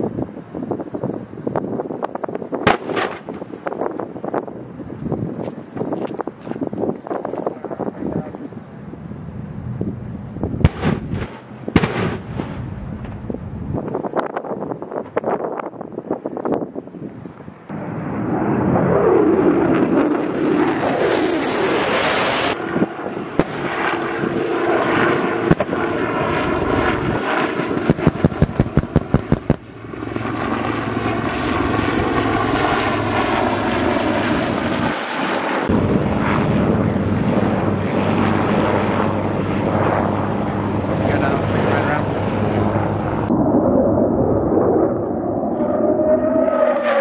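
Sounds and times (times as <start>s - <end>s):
aircraft engine passing: 17.5s - 47.0s
helicopters running: 17.7s - 47.0s.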